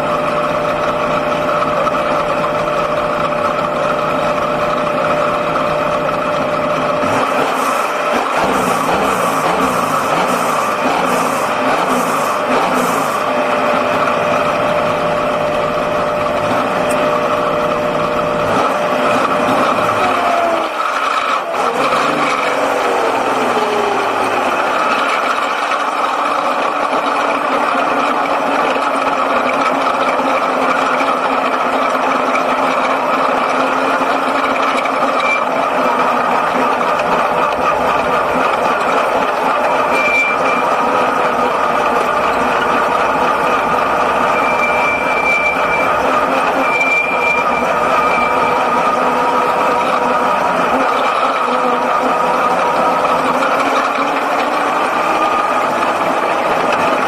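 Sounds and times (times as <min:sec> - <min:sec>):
car engine droning: 0:00.0 - 0:57.0.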